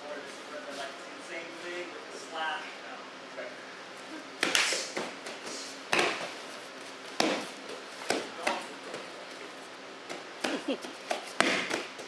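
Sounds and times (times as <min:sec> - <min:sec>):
slaps and thuds of strikes: 0:04.4 - 0:06.4, 0:07.2 - 0:08.6, 0:11.4 - 0:12.0
uniforms snapping: 0:04.4 - 0:06.4.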